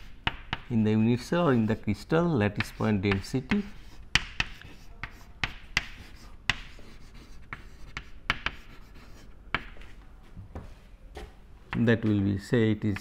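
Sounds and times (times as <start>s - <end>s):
chalk writing on chalkboard: 0.0s - 9.9s.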